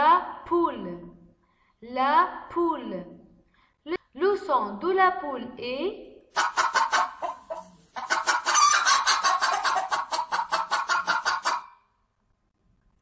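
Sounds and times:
hen clucking: 6.4 - 11.8.

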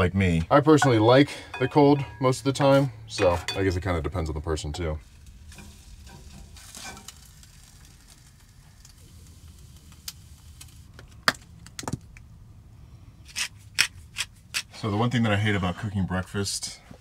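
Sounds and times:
frying pan sizzling: 0.8 - 11.0.

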